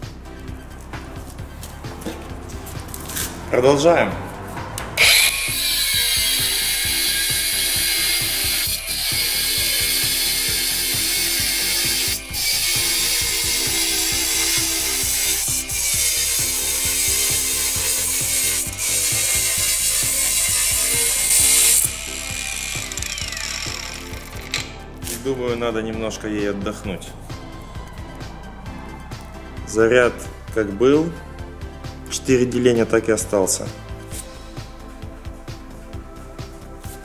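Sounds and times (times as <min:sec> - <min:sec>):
grinder motor whine winding down: 0:05.0 - 0:15.4, 0:18.8 - 0:24.8
angle grinder cutting steel: 0:05.0 - 0:25.2.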